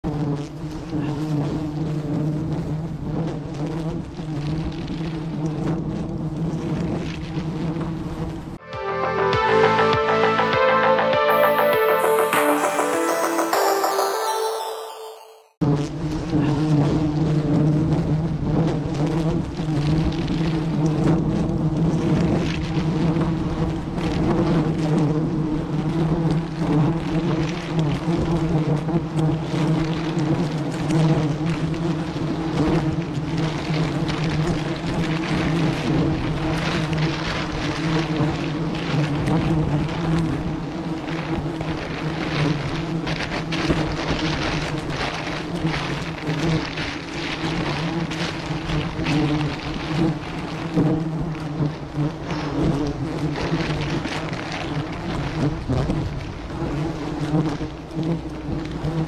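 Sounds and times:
honeybees buzzing: 0.1 - 8.6, 16.0 - 59.0
plastic bag rustling: 41.7 - 50.7.

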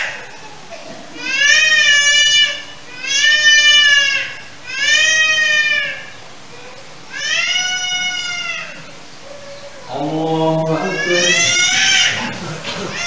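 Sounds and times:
goat bleating: 9.9 - 13.0.

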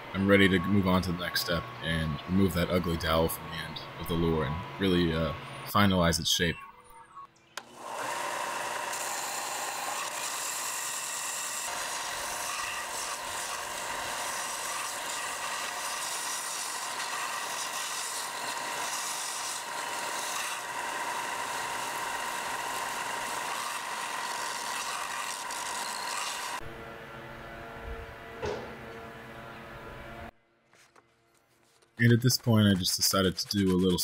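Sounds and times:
belt sander grinding wood: 7.6 - 26.7, 32.0 - 34.0.

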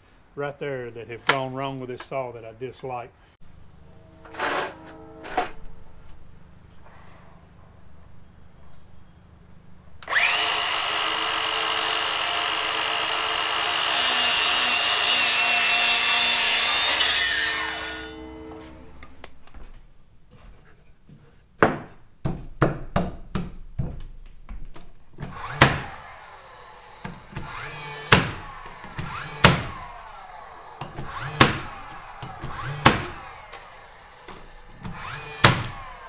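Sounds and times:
falling whine: 3.4 - 9.1, 16.9 - 20.0, 25.6 - 36.0
nail gun firing into wood: 25.2 - 26.0, 27.0 - 29.9, 30.8 - 36.0.

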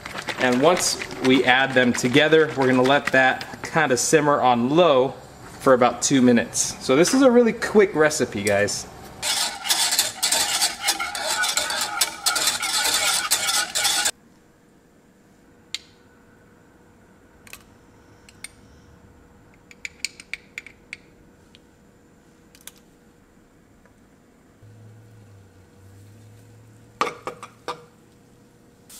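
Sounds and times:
kitchen utensils clicking: 9.2 - 14.1
utensil scraping in skillet: 9.2 - 14.1.

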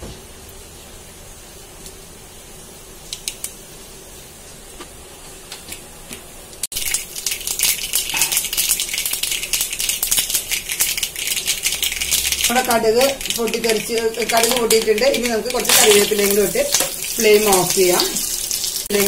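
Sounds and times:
seeds popping in hot oil: 6.7 - 19.0.

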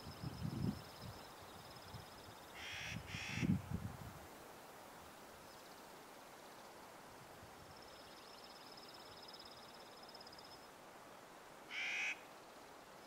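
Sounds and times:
bird giving harsh caws: 2.6 - 3.5, 11.7 - 12.2.

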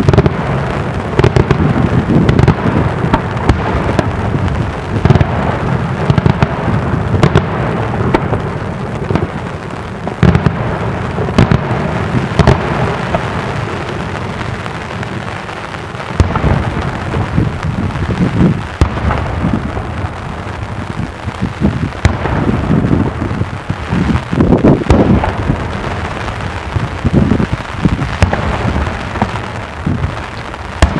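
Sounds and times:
firework shells bursting: 15.9 - 30.9.

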